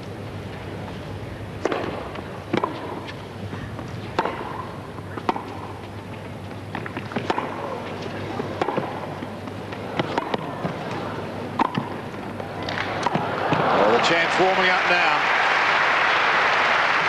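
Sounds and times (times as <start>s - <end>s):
tennis ball pocks: 6.7s - 7.8s, 8.4s - 10.8s
crowd murmur: 7.3s - 14.4s.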